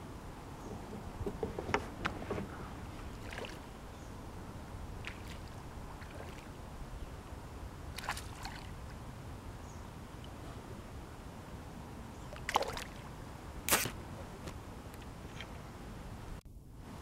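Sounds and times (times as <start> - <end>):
water splashing: 0.9 - 3.8, 4.9 - 6.6, 7.9 - 9.0, 12.3 - 13.1.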